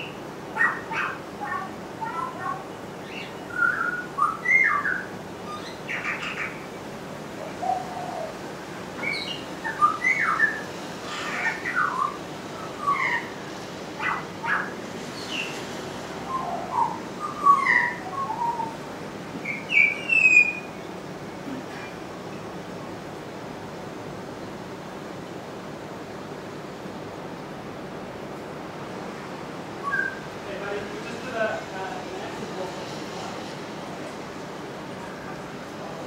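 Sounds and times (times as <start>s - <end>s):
bird singing whistled phrases: 3.1s - 6.5s, 9.0s - 10.6s, 11.4s - 12.2s, 16.3s - 18.8s, 19.4s - 20.7s, 29.8s - 30.2s.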